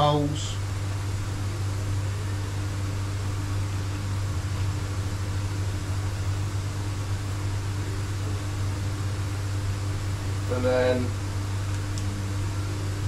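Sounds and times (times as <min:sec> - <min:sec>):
even hiss: 0:00.0 - 0:00.8
low machine hum: 0:00.0 - 0:13.0.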